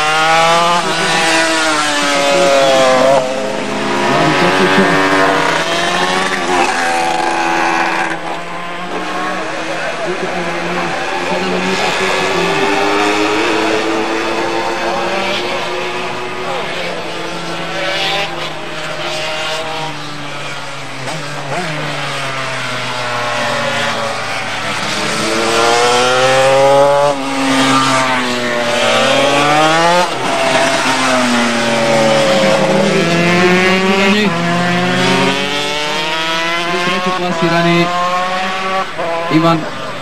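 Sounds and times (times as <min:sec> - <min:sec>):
racing motorcycles revving: 0:00.0 - 0:40.0.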